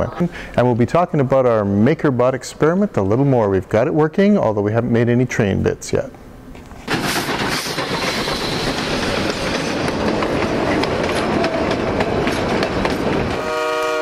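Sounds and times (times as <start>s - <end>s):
steam train rushing past: 6.8s - 14.0s.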